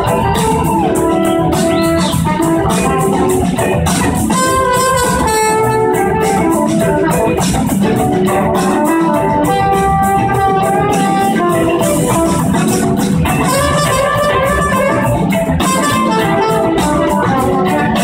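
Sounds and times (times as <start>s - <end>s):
lead guitar bending notes: 0.0s - 18.0s
live rock band playing: 0.0s - 18.0s.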